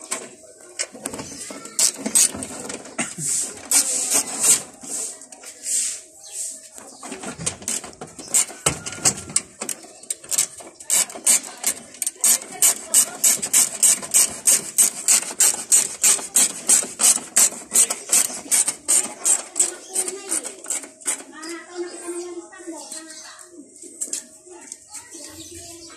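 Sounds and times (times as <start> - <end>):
socket ratchet rasping: 1.6 - 2.5, 7.6 - 21.3.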